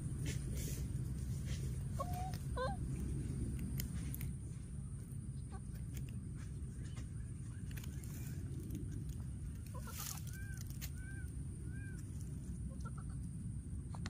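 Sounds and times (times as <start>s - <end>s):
steady low rumble: 0.0s - 14.0s
baby monkey high calls: 1.9s - 2.8s, 9.6s - 12.1s.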